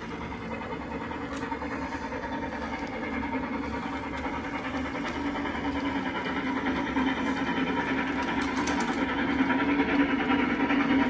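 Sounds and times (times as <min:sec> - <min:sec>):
toy train motor whirring: 0:01.2 - 0:11.0.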